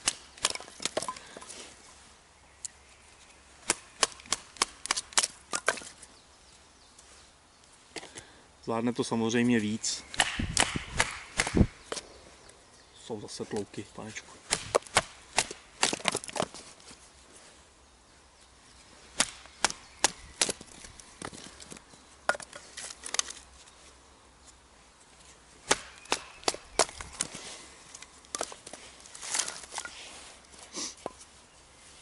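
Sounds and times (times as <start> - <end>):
knife splitting wood: 0.0 - 1.5, 3.6 - 6.0, 14.5 - 16.6, 25.6 - 30.0.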